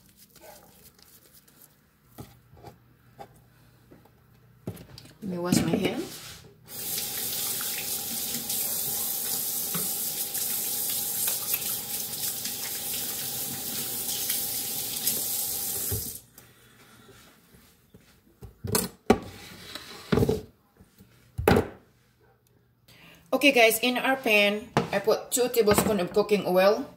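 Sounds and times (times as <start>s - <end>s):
tap running over washing hands: 6.7s - 16.2s.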